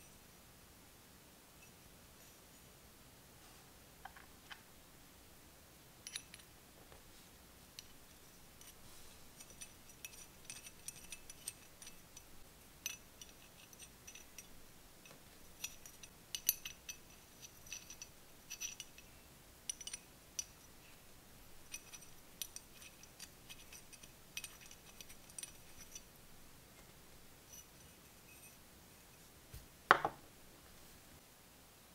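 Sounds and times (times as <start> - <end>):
small metal parts clicking: 6.0 - 6.5, 9.4 - 20.9, 21.5 - 26.1.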